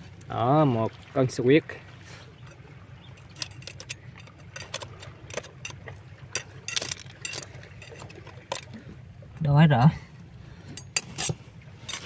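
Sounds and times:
low steady hum: 0:00.0 - 0:12.0
clinks of shell and stone: 0:02.4 - 0:08.8.

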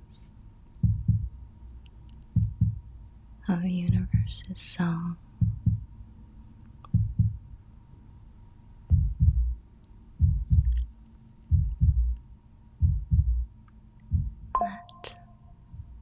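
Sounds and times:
heartbeat thumps: 0:00.8 - 0:01.4, 0:02.4 - 0:02.9, 0:03.7 - 0:04.4, 0:05.4 - 0:05.9, 0:06.9 - 0:07.4, 0:08.9 - 0:09.6, 0:10.2 - 0:10.9, 0:11.5 - 0:12.2, 0:12.8 - 0:13.5, 0:14.1 - 0:14.6, 0:15.7 - 0:16.0.

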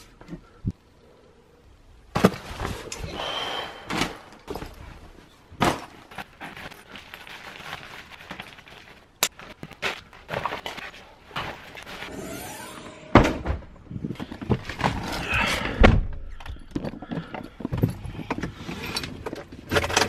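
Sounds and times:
clothes rustling: 0:03.9 - 0:12.1.

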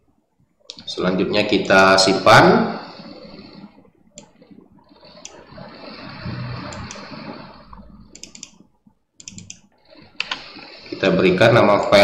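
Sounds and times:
computer mouse clicks: 0:04.2 - 0:04.4, 0:06.7 - 0:07.1, 0:08.1 - 0:08.6, 0:09.2 - 0:10.5.

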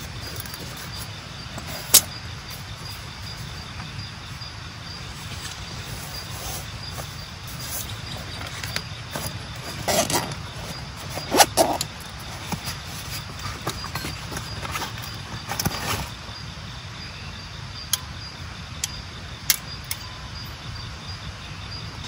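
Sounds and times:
camping gear knocking and rustling: 0:00.0 - 0:04.1, 0:05.4 - 0:16.3
insects chirring: 0:00.0 - 0:22.0.

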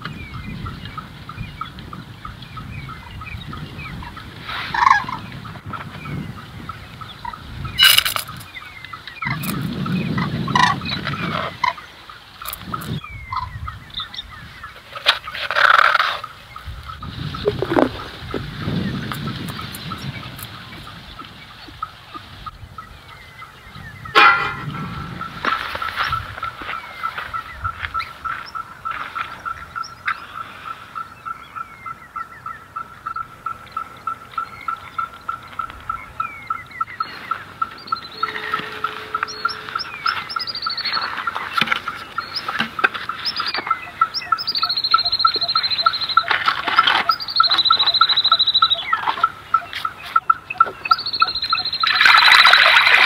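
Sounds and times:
small birds chirping: 0:00.0 - 0:53.0
fowl calling: 0:02.8 - 0:05.8, 0:08.6 - 0:53.0
bird repeating short note: 0:38.1 - 0:40.5.

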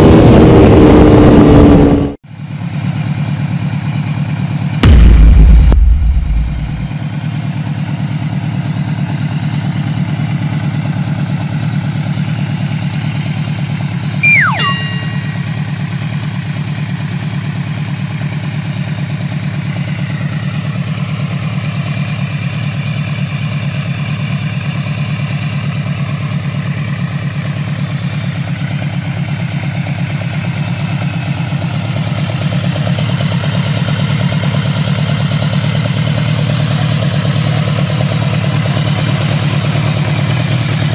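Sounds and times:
falling whistle ending in a click: 0:14.2 - 0:15.6.

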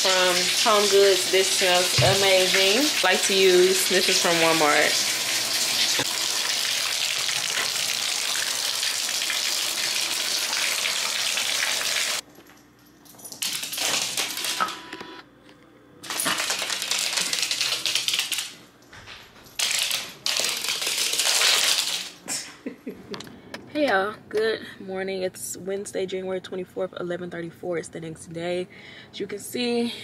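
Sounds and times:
tap water pouring into tub: 0:00.1 - 0:12.2.

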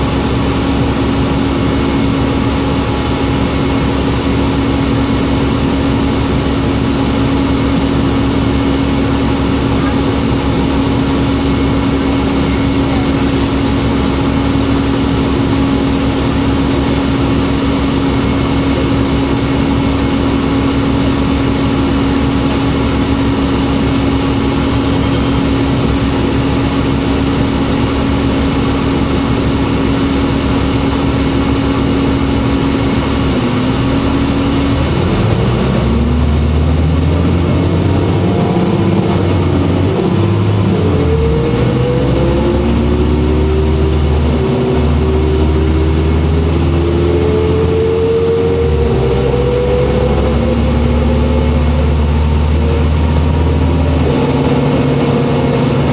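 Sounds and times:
bus engine humming: 0:00.0 - 0:55.9.

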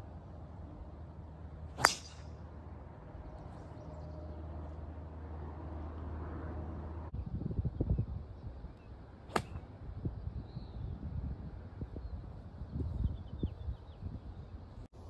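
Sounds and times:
golf club striking ball: 0:01.8 - 0:02.4, 0:09.3 - 0:09.6.

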